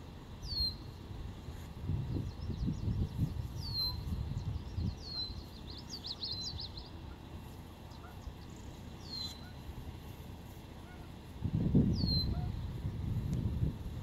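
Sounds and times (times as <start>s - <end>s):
small birds calling: 0.4s - 1.0s, 2.1s - 11.3s, 11.9s - 12.7s.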